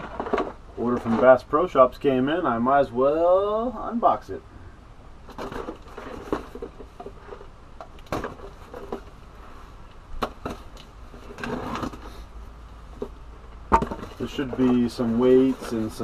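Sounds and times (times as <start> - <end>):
cardboard and tape rustling: 0.0 - 1.5, 5.3 - 12.3, 12.9 - 16.0.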